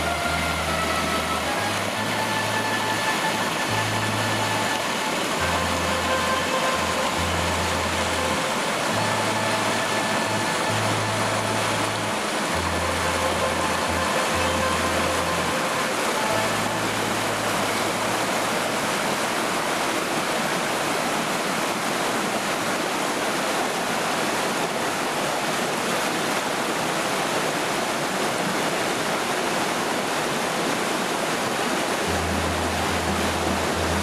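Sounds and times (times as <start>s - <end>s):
low steady tones: 0.0s - 19.5s, 32.0s - 34.0s
river rushing over rocks: 0.0s - 34.0s.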